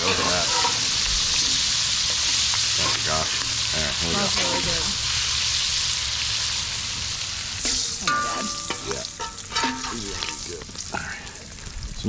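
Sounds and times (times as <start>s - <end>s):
steel spatula scraping pan: 0.0s - 1.6s, 7.6s - 10.5s
sausage sizzling in oil: 0.0s - 12.0s.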